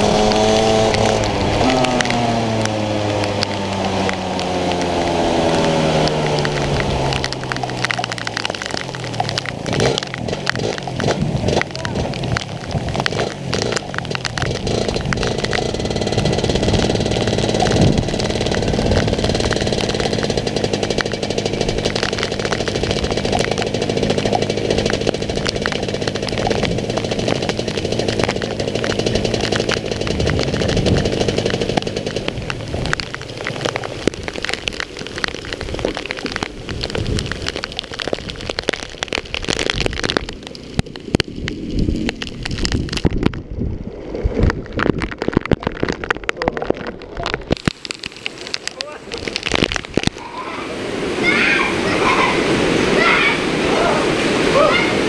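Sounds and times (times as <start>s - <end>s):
kart engine running: 0.0s - 34.6s
rain spattering on camera: 0.0s - 55.0s.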